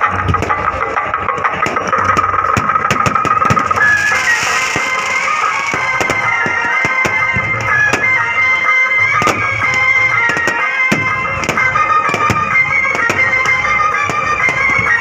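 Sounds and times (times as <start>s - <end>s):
fireworks crackling and popping: 0.0s - 15.0s
music with high piping notes: 0.0s - 15.0s.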